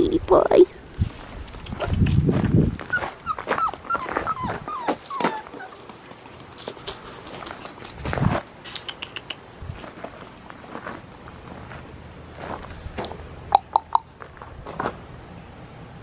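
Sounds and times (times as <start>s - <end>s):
puppy crying: 2.5s - 6.0s.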